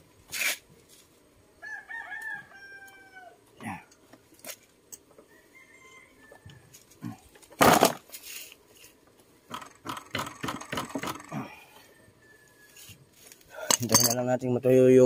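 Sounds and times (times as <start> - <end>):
wrench clinking and scraping: 13.6 - 14.3.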